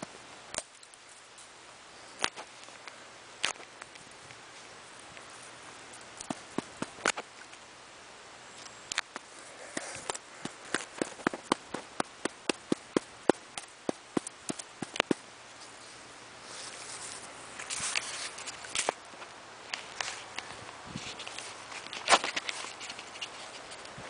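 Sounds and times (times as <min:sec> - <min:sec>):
stick tapping dry puffball: 0:09.8 - 0:15.2.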